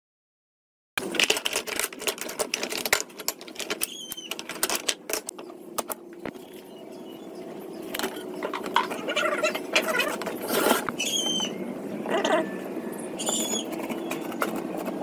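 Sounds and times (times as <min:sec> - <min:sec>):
board being measured and marked: 0:13.2 - 0:15.0.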